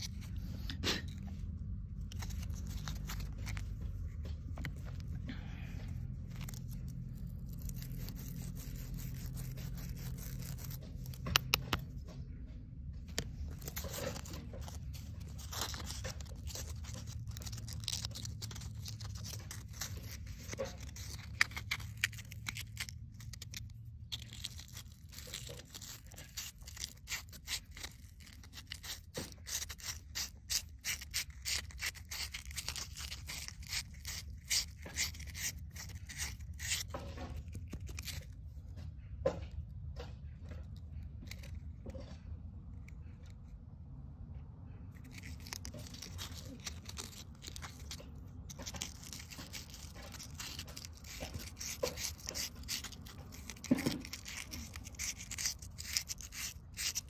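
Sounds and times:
steady low hum: 0.0s - 57.0s
abrasive paper rubbing metal: 6.2s - 11.7s, 13.2s - 38.3s, 45.0s - 57.0s.

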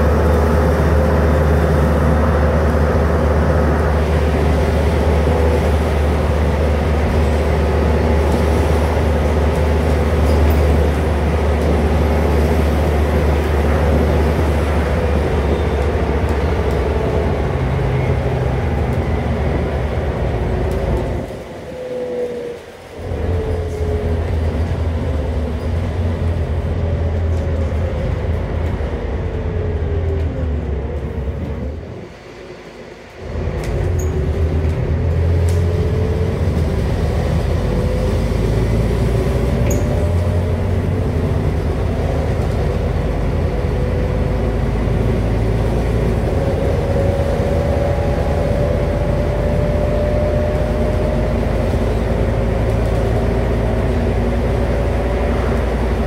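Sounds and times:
bus engine drone with whine: 0.0s - 56.0s.

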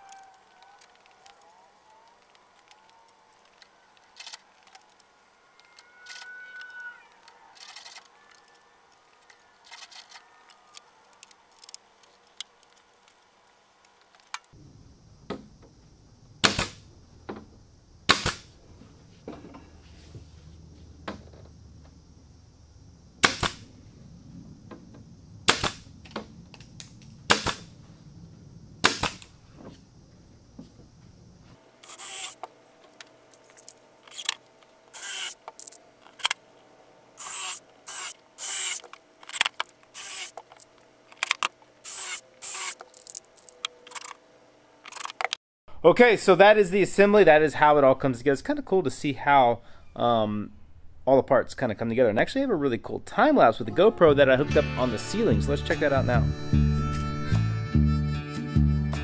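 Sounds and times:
steady low hum: 14.5s - 44.9s
nail gun snaps: 23.2s - 23.6s, 27.3s - 27.6s, 28.8s - 29.3s.

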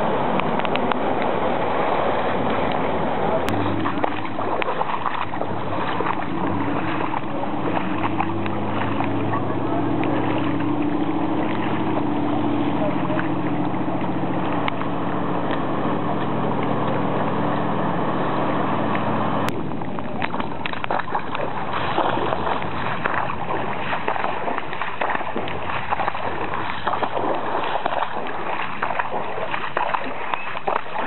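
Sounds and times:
feet wading through water: 0.0s - 31.0s
low mechanical hum: 0.0s - 31.0s
water noise: 0.0s - 31.0s.

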